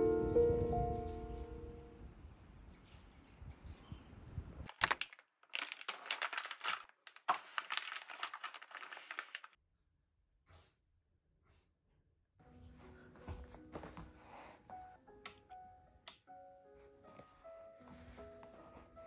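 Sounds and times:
faint piano music: 0:00.0 - 0:02.2, 0:12.4 - 0:19.0
plastic bags crinkling: 0:04.7 - 0:09.6.

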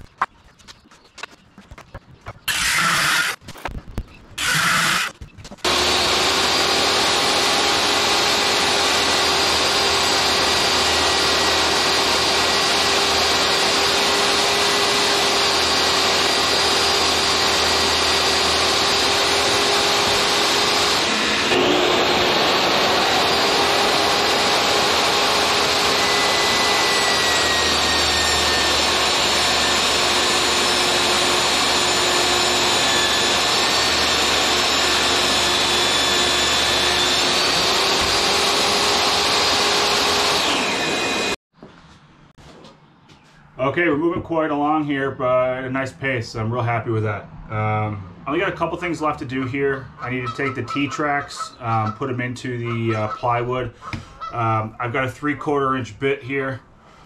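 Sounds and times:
table saw cutting plywood: 0:02.4 - 0:03.4, 0:04.4 - 0:41.4, 0:48.3 - 0:53.1
motor winding up whine: 0:02.5 - 0:03.4, 0:04.4 - 0:41.4
dust extraction vacuum: 0:04.4 - 0:41.4.

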